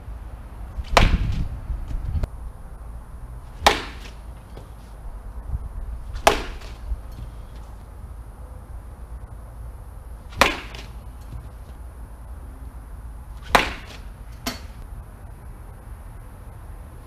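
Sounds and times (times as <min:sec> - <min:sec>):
bat hitting baseball crack: 0:00.8 - 0:02.0, 0:03.5 - 0:05.0, 0:06.1 - 0:07.8, 0:10.2 - 0:11.8, 0:13.4 - 0:14.9.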